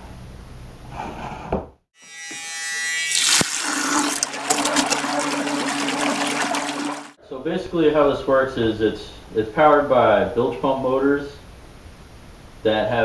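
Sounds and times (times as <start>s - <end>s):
churning water: 3.1s - 7.2s.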